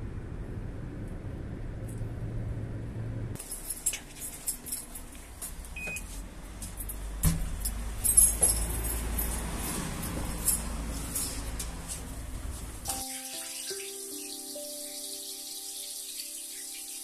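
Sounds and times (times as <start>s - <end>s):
low steady hum: 0.0s - 3.8s
keys jangling and clicking: 3.4s - 5.5s, 7.6s - 11.7s.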